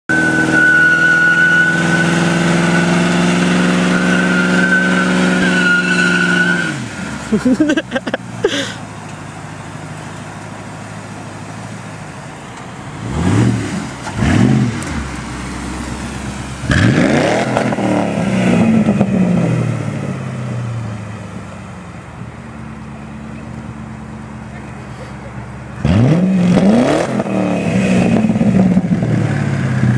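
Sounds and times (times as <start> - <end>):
car engine revving through loud exhaust: 0.1 - 8.1, 12.9 - 21.0, 25.7 - 29.9.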